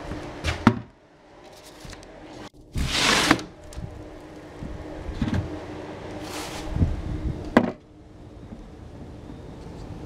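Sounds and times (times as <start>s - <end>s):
faint steady hum: 0.0s - 10.0s.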